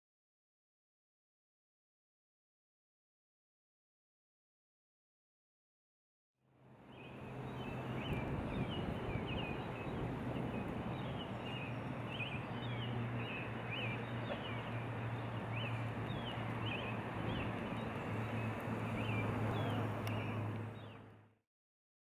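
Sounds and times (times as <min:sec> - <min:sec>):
small birds chirping: 0:06.9 - 0:21.0.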